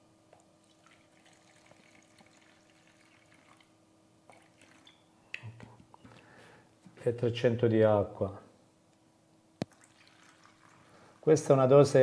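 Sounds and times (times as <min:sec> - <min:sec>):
liquid trickling into a jug: 0:00.6 - 0:03.7, 0:04.3 - 0:05.1, 0:09.6 - 0:11.3.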